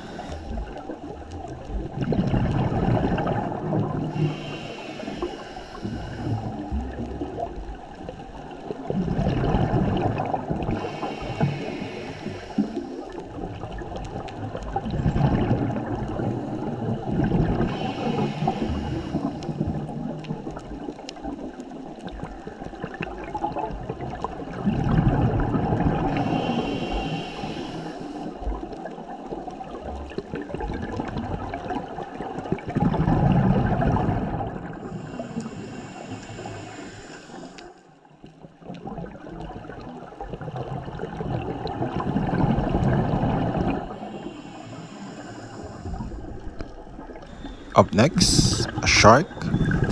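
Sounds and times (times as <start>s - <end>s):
underwater water noise: 0.0s - 49.9s
diver exhaling bubbles: 45.6s - 49.9s.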